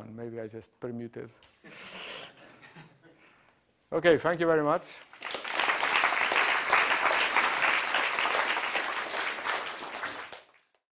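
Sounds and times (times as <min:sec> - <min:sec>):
audience applauding: 0:05.0 - 0:10.8.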